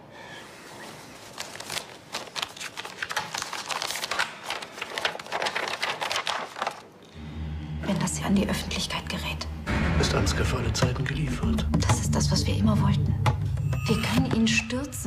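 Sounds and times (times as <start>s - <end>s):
paper rustling: 0.5s - 7.1s.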